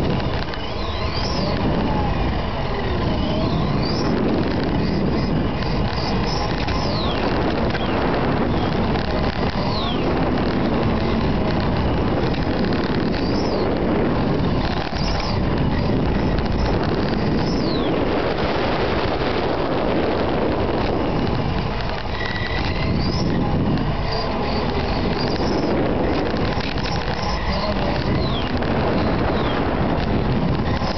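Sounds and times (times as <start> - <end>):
high gliding whines: 0.0 - 30.9
model car motor and tyres rushing: 0.0 - 30.9.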